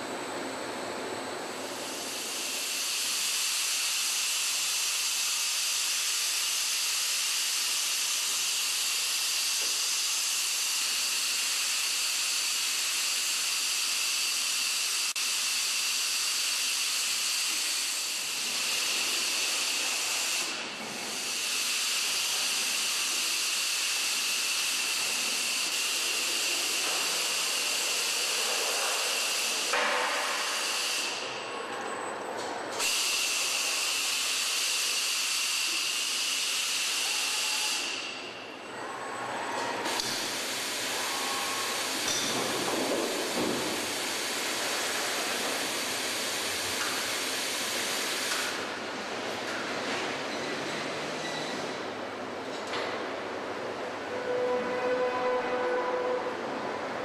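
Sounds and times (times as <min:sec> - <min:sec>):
laser welding hiss: 0:01.8 - 0:31.2, 0:32.8 - 0:38.2, 0:39.9 - 0:48.6.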